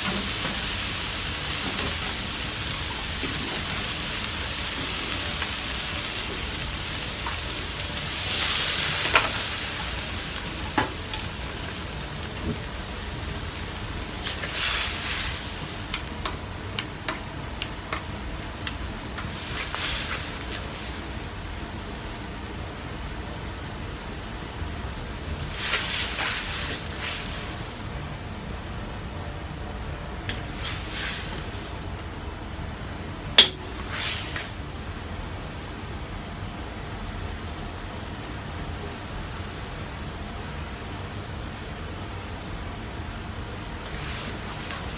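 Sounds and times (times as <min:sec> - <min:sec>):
vegetables sizzling in a wok: 0:00.0 - 0:29.6, 0:30.2 - 0:44.9
gas flame rushing: 0:12.2 - 0:21.4, 0:25.4 - 0:28.0, 0:30.2 - 0:32.0, 0:33.4 - 0:34.8.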